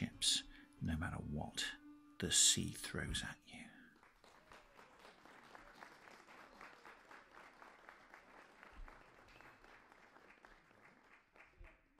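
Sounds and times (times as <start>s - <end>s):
faint applause: 3.8s - 11.9s.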